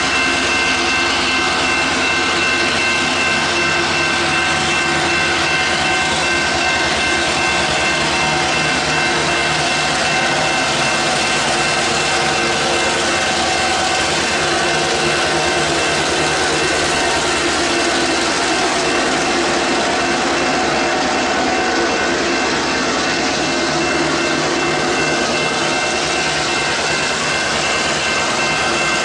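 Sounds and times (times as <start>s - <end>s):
locomotive engines working hard: 0.0s - 29.0s
train wagons rolling on track: 0.0s - 29.0s.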